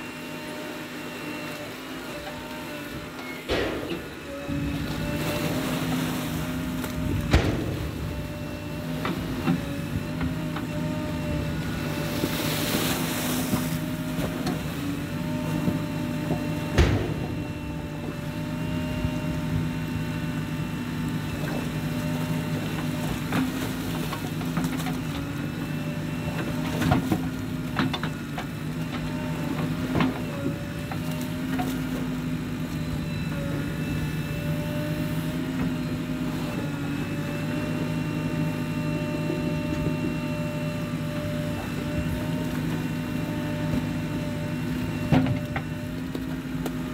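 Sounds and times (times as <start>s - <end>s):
constant whine: 0.0s - 46.9s
diesel engine under load: 0.0s - 46.9s
bucket and arm clanking: 3.1s - 19.2s.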